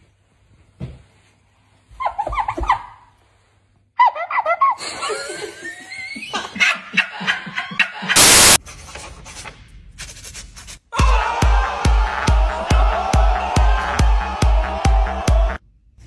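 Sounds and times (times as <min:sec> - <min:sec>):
men laughing: 0:04.5 - 0:08.6
burst of static hiss: 0:08.2 - 0:08.6.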